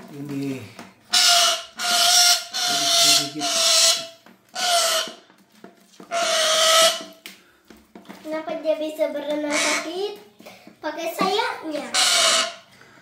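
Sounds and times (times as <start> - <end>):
parrot screeching harshly: 1.1 - 5.3, 6.0 - 7.2, 9.5 - 9.9, 11.7 - 12.7.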